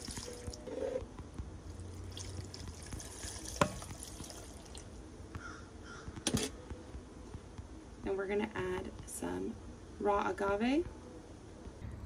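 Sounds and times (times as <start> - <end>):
juice trickling and dripping: 0.0 - 0.7, 1.7 - 5.0.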